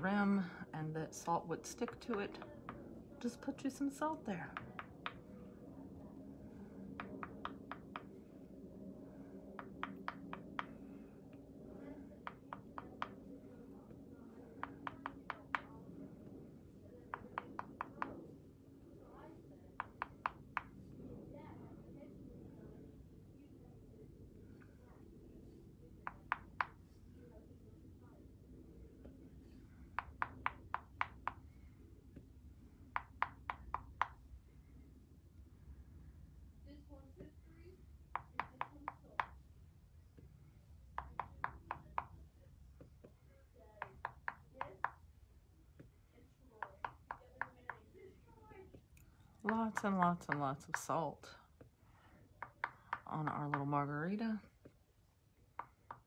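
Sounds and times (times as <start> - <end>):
faint steady hum: 0.0 - 56.0
brush tapping on wood: 1.7 - 3.3, 4.3 - 5.6, 6.9 - 8.2, 9.6 - 11.1, 11.8 - 13.4, 14.5 - 15.8, 17.1 - 18.3, 19.8 - 20.8, 26.0 - 27.0, 29.0 - 34.3, 38.1 - 39.4, 40.9 - 42.2, 43.8 - 45.1, 46.6 - 48.1, 48.7 - 51.1, 52.4 - 53.9, 55.6 - 56.0
light taps of paintbrush: 1.8 - 3.0, 4.5 - 5.5, 11.8 - 13.4, 29.0 - 32.3, 43.8 - 45.0.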